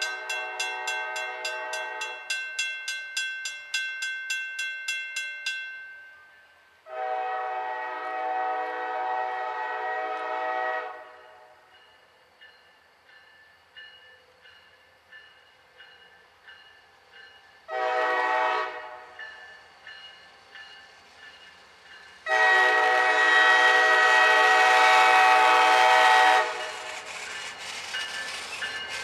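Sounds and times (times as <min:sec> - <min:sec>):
crossing bells ringing: 0:00.0 - 0:06.8, 0:11.2 - 0:17.7, 0:19.1 - 0:22.3, 0:26.6 - 0:29.0
locomotive air horn blasts: 0:00.2 - 0:02.2, 0:06.9 - 0:11.6, 0:17.7 - 0:19.2, 0:22.2 - 0:26.8.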